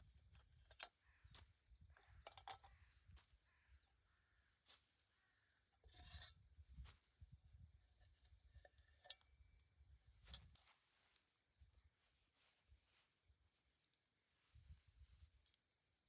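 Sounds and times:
metal pot clicks: 2.2 - 2.8.

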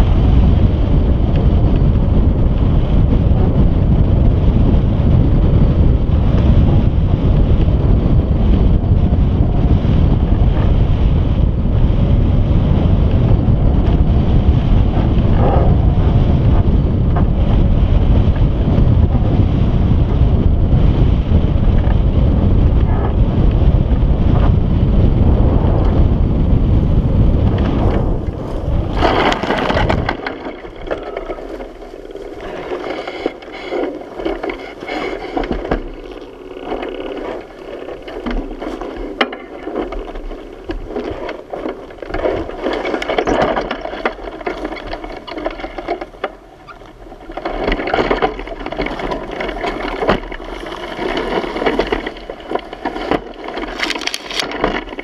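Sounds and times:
wind buffeting microphone: 0.0 - 55.0
dry brush rustling and scraping: 26.8 - 55.0.

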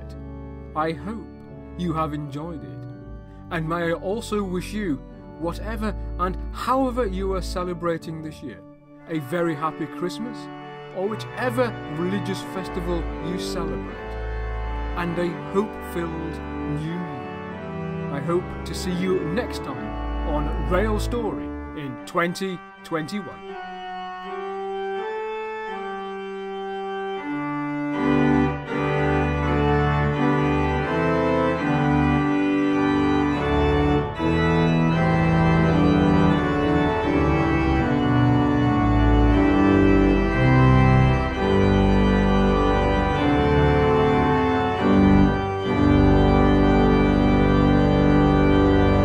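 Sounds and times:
deep organ bass line: 0.0 - 49.0
organ playing held chords: 0.0 - 49.0.

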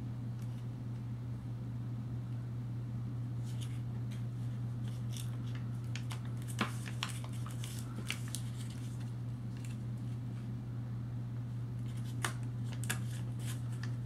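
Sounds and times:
steady low hum: 0.0 - 14.0
foil paper wrapper crinkling: 4.8 - 9.8, 11.8 - 14.0.

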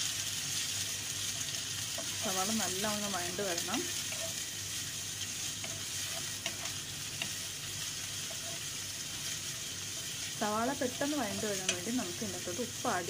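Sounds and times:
onions sizzling in hot oil: 0.0 - 13.0
wooden spatula stirring: 1.3 - 4.5, 5.2 - 12.4.

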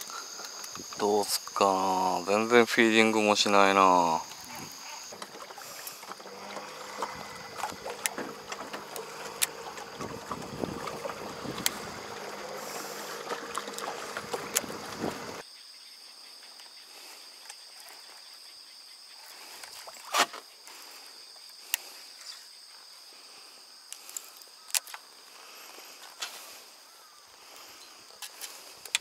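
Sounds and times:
lake ambience: 0.0 - 15.4
wind and water noise: 2.2 - 15.4
trolling motor hum: 3.8 - 15.4.

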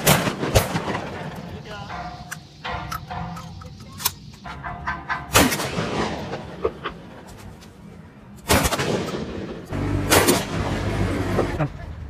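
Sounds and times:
gunshot: 0.0 - 1.3, 5.3 - 6.7, 8.5 - 10.7.

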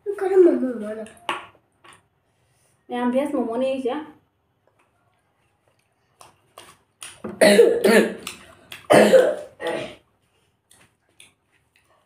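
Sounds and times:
woman coughing: 7.4 - 8.2, 8.9 - 10.0.

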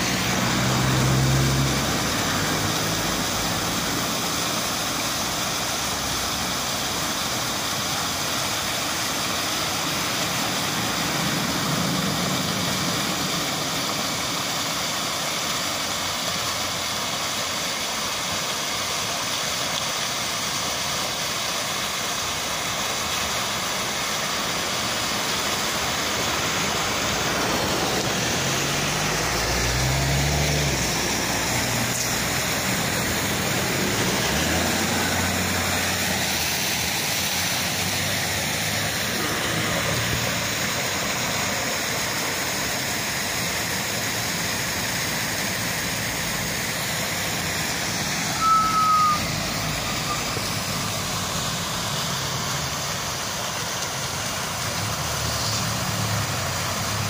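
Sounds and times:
vehicle engine passing: 0.0 - 4.4, 9.7 - 14.1, 25.1 - 43.0, 44.0 - 52.9, 54.4 - 57.0
fountain water splashing: 0.0 - 57.0
street sound: 0.0 - 57.0.

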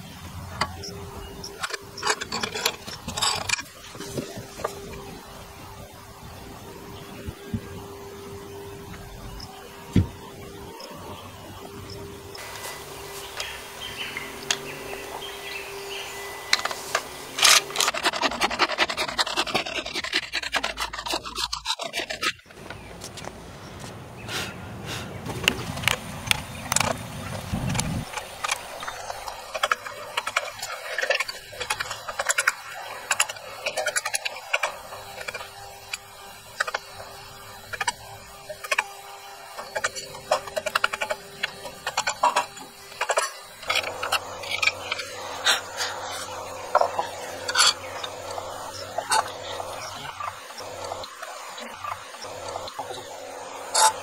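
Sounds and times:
bow drill strokes: 11.5 - 22.8.

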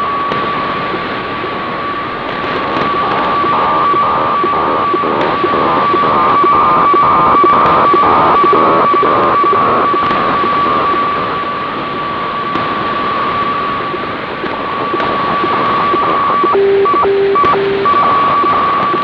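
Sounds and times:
pulsing radio fax tone: 1.6 - 19.0
radio static: 1.8 - 19.0.

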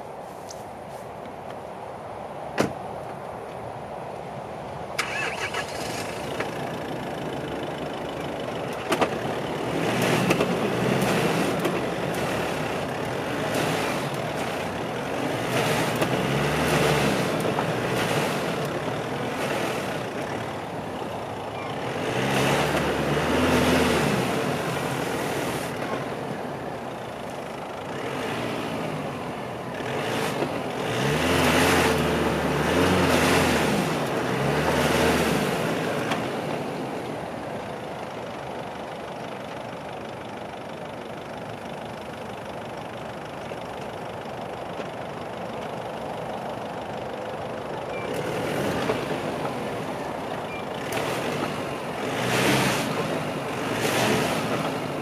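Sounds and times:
pickup engine revving: 5.0 - 26.8, 27.8 - 37.4, 47.9 - 55.0
wheels spinning in mud: 5.0 - 26.9, 47.8 - 55.0.

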